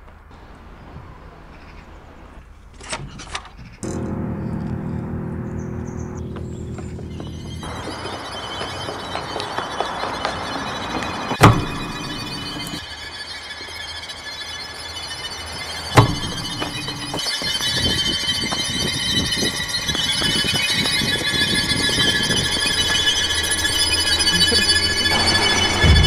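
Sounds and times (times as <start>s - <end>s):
shrill high-pitched ringing drone: 3.8s - 26.0s
sudden loud hit: 24.8s - 26.0s.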